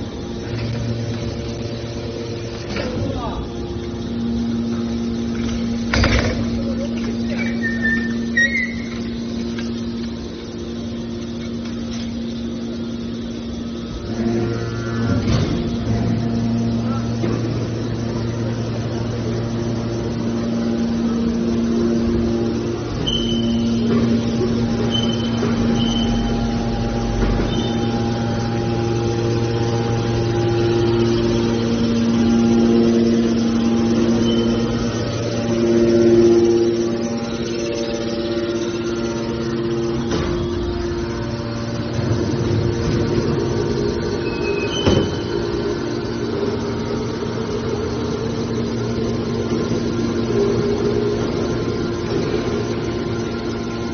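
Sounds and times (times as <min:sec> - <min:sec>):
hydraulic power unit humming: 0:00.0 - 0:53.9
high squeaks: 0:07.3 - 0:09.2.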